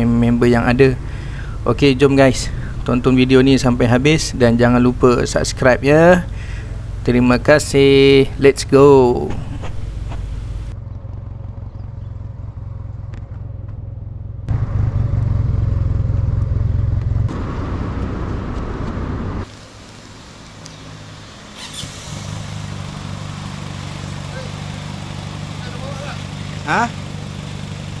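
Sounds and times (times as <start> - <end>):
engine idling with low hum: 0.0 - 17.4, 19.4 - 28.0
scooter engine pulling away: 10.7 - 20.2, 20.8 - 28.0.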